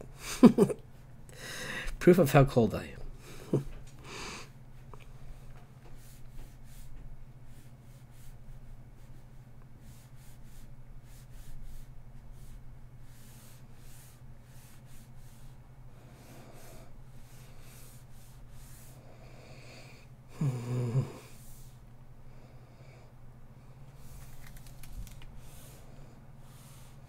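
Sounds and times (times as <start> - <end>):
low electrical hum: 0.0 - 27.0
stylus scratching on drawing tablet: 5.9 - 19.0, 25.4 - 27.0.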